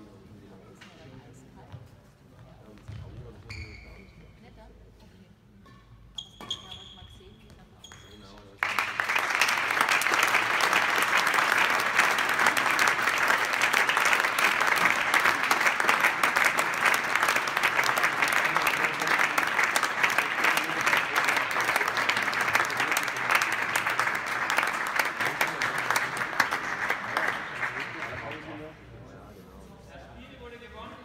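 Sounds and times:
spectators clapping: 8.6 - 28.8.

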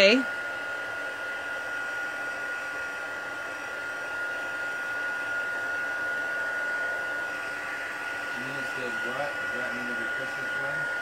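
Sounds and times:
heat gun blowing with whine: 0.0 - 11.0.

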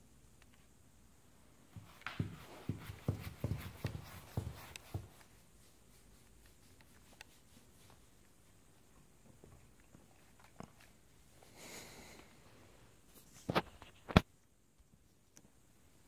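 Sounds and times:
hand rubbing dog fur: 1.8 - 8.6.

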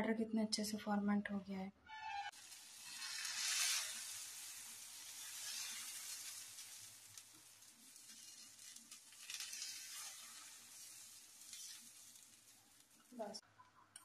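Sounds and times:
batter sizzling on a hot pan: 2.2 - 13.4.

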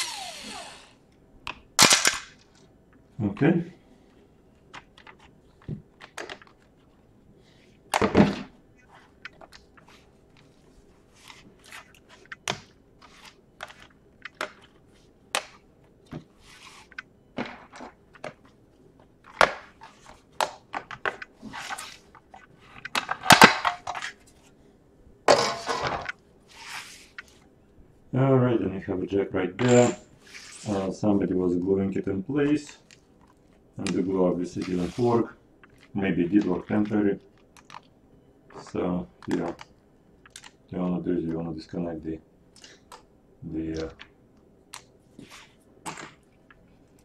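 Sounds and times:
plastic cracking: 4.7 - 6.8, 35.6 - 37.9, 38.5 - 40.6.

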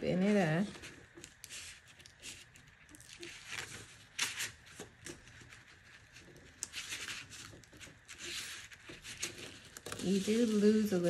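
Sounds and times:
crepe paper rustling and crinkling: 0.2 - 11.0.

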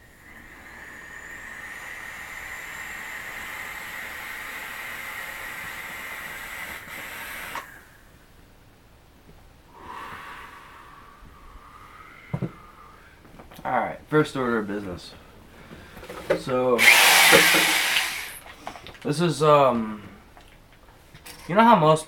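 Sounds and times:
breathy exhale: 0.0 - 5.8, 9.7 - 13.2
airy hiss of inhaling vapour: 0.0 - 8.1, 9.7 - 13.2.

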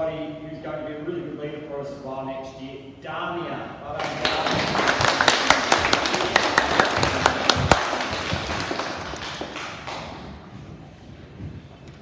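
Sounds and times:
children clapping: 4.0 - 10.4.

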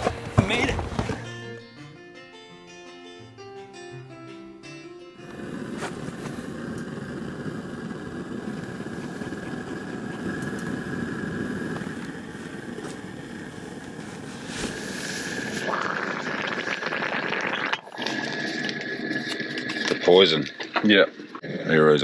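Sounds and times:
gas stove burner roaring: 5.2 - 20.6
bright hiss: 5.3 - 15.7.

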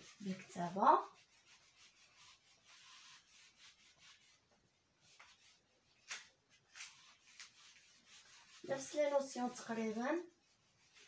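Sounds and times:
eraser rubbing on whiteboard: 0.0 - 4.4, 5.0 - 11.0.

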